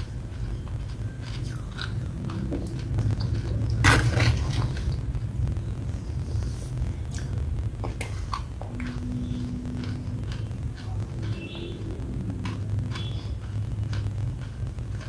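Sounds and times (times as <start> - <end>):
low rumble: 0.0 - 15.0
short steady hum: 4.9 - 15.0.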